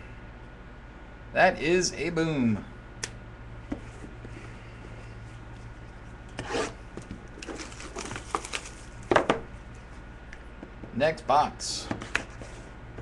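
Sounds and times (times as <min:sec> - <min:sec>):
steady low hum: 0:00.0 - 0:13.0
cards and packaging rubbing: 0:07.4 - 0:09.0.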